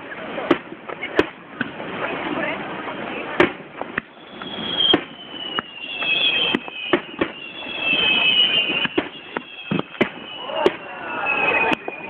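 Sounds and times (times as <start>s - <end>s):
firework shells bursting: 3.4s - 12.0s
thin high whistle: 4.0s - 12.0s.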